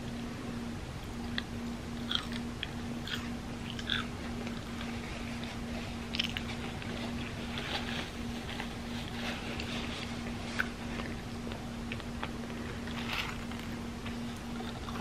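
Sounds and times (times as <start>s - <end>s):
faint low hum: 0.0s - 15.0s
chewing with wet mouth clicks: 1.2s - 4.7s, 6.1s - 6.5s.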